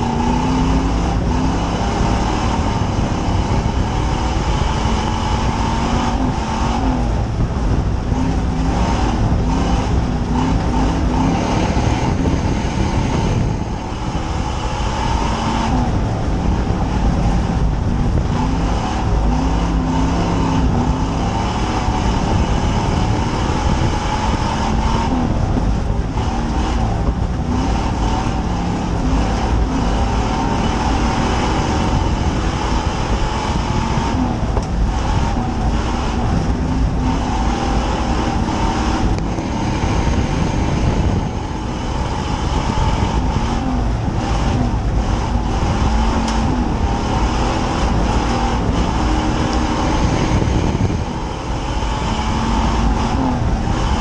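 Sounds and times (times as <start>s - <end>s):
race car engine running hard: 0.0s - 54.0s
road and wind noise: 0.0s - 54.0s.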